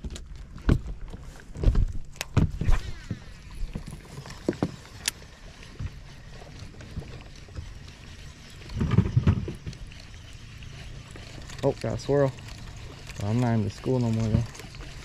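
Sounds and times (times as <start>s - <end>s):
fishing gear knocks and clicks: 0.0s - 7.8s, 8.5s - 10.0s
water: 0.0s - 15.0s
wind: 0.0s - 15.0s.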